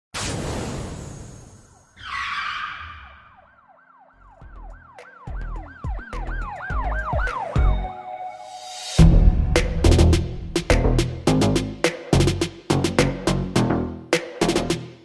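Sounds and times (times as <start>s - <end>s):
yelping siren sound: 2.0s - 8.2s
intro music: 4.3s - 14.9s
heavy bass hits: 9.0s - 13.3s.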